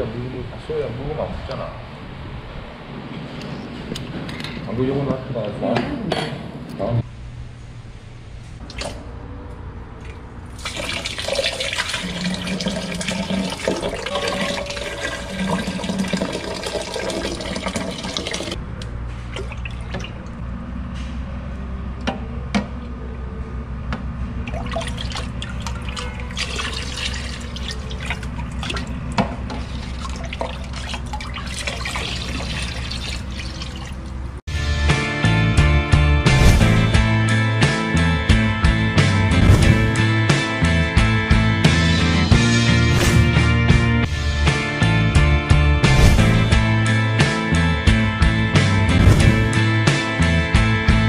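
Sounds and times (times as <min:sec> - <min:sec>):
liquid sloshing and pouring: 0:10.0 - 0:18.6, 0:19.3 - 0:20.3, 0:24.4 - 0:34.4.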